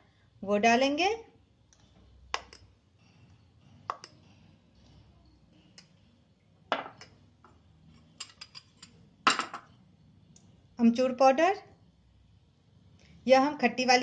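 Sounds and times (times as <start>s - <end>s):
spoon clinking ceramic bowls: 8.0s - 9.7s.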